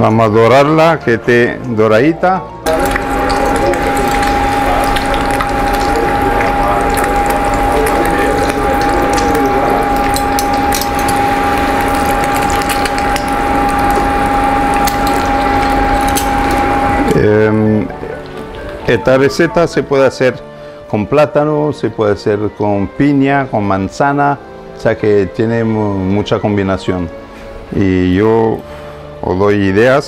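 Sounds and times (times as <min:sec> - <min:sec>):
steady tone humming: 0:02.6 - 0:20.8
bread frying in oil: 0:02.6 - 0:20.9.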